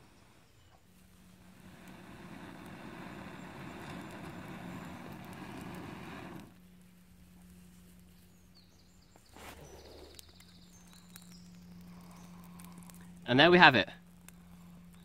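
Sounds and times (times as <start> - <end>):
breath blowing into tinder: 1.4 - 6.6.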